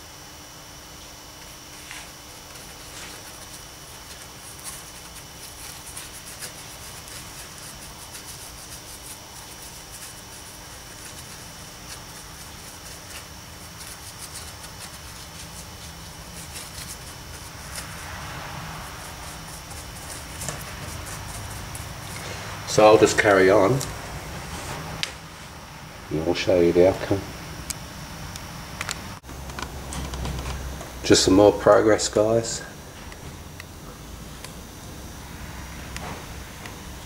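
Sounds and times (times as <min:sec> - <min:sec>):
steady hum: 0:00.0 - 0:37.0
paintbrush scratching: 0:01.7 - 0:25.0.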